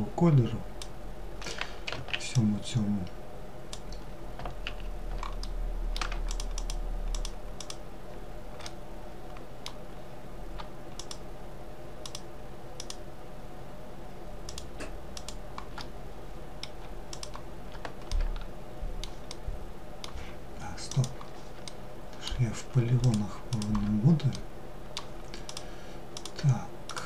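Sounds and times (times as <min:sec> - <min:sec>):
steady low hum: 0:00.0 - 0:27.0
mouse and keyboard clicking: 0:03.7 - 0:07.8, 0:10.6 - 0:11.2, 0:12.0 - 0:13.0, 0:14.5 - 0:15.9, 0:16.6 - 0:19.4, 0:20.9 - 0:21.8, 0:23.0 - 0:24.4, 0:25.0 - 0:27.0.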